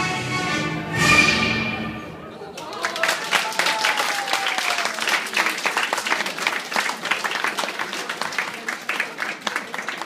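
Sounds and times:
audience applauding: 2.5s - 10.0s.

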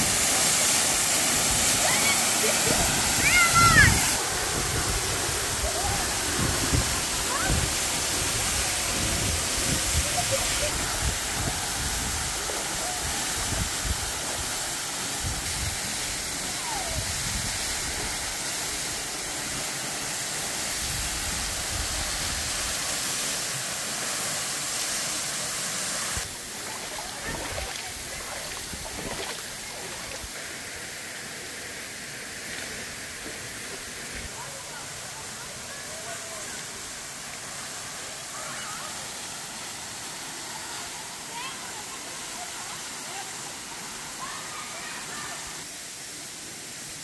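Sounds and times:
rocky river flowing: 0.0s - 17.0s, 23.3s - 30.6s
waterfall rushing: 0.0s - 47.0s.

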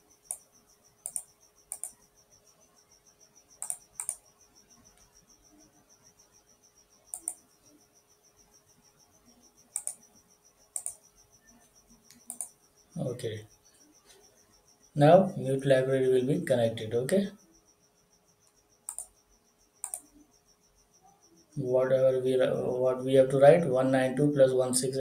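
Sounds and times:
faint high-pitched electrical pulsing: 0.0s - 25.0s
computer mouse clicks: 0.2s - 2.0s, 3.6s - 4.3s, 7.1s - 7.4s, 9.7s - 10.1s, 10.7s - 11.0s, 12.0s - 12.6s, 18.4s - 19.2s, 19.8s - 20.1s.

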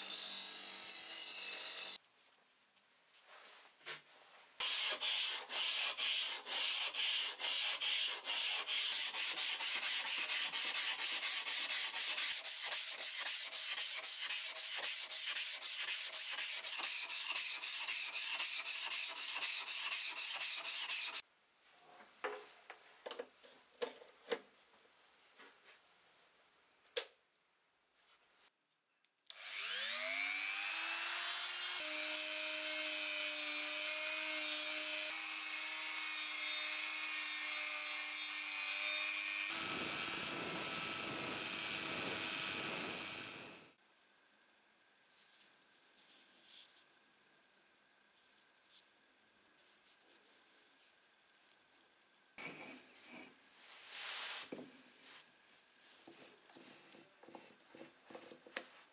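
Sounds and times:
sandpaper scraping steel blade: 4.6s - 21.2s
rotary tool whining: 29.3s - 43.7s.

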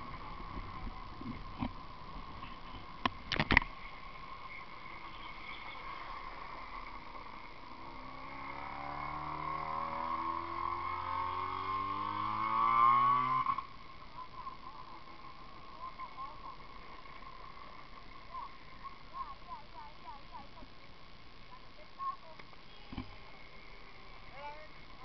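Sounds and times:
vehicle engine revving up: 7.6s - 13.8s.

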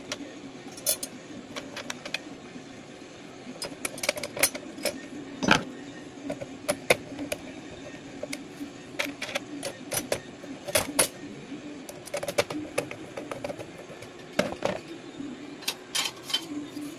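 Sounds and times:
low steady hum: 0.0s - 16.9s
metal clicks and clinks: 0.7s - 1.1s.

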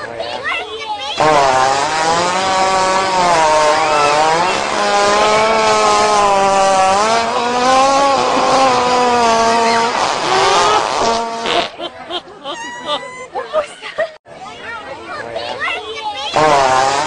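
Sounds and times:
chainsaw cutting into tree trunk: 1.2s - 11.6s, 16.4s - 17.0s.

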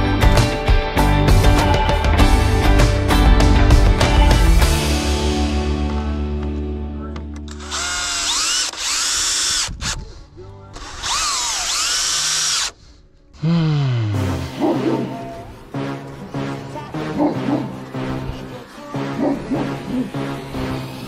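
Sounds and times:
background music: 0.0s - 8.2s, 10.2s - 21.0s
power drill driving screws: 7.5s - 10.0s, 10.8s - 12.8s.

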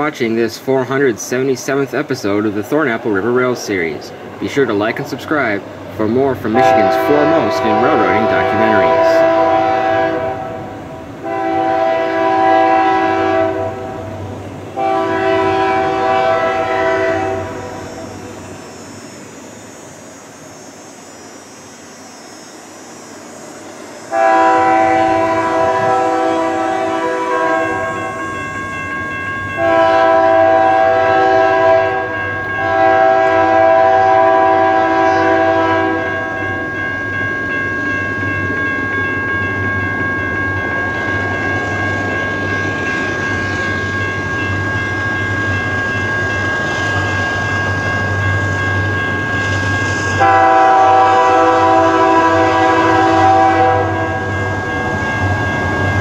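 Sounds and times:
steady high tone: 0.0s - 56.0s
locomotive air horn blasts: 6.5s - 14.2s, 14.8s - 17.9s, 24.1s - 28.1s, 29.6s - 36.4s, 50.1s - 54.4s.

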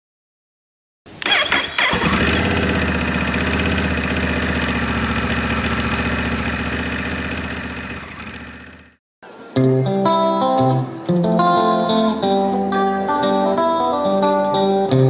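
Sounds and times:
motorcycle engine starting and idling: 1.1s - 9.0s.

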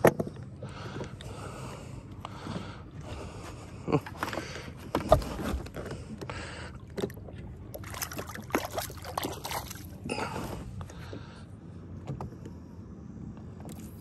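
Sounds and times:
water splashing and sloshing: 2.4s - 12.4s.

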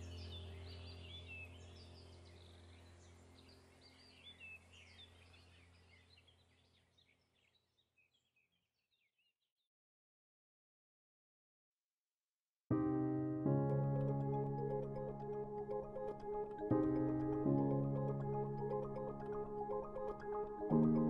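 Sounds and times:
small birds chirping: 0.0s - 9.5s.

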